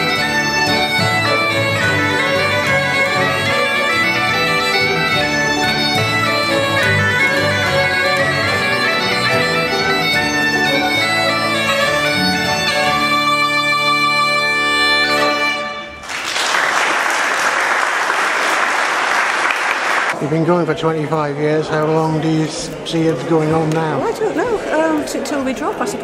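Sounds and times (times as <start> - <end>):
folk band with pipes playing: 0.0 - 16.0
audience applause: 16.0 - 20.2.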